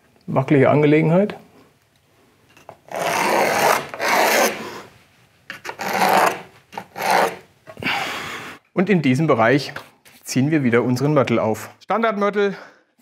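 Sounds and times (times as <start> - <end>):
pencil scratching on wall: 2.9 - 4.9, 5.6 - 7.5.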